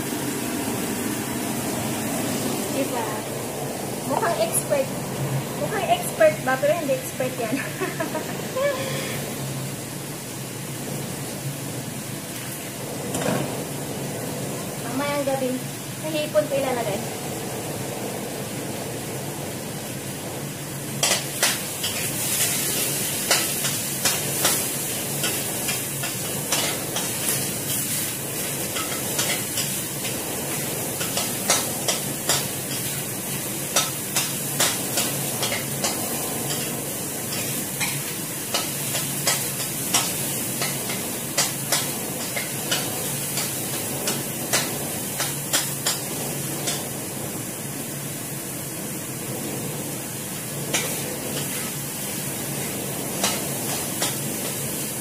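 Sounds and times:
frying sizzle: 0:00.0 - 0:55.0
spatula scraping and clinking wok: 0:21.0 - 0:46.9, 0:50.6 - 0:55.0.

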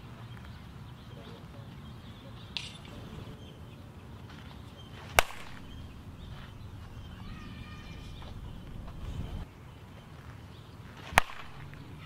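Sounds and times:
bat cracking ball: 0:05.0 - 0:07.1, 0:11.0 - 0:12.0.

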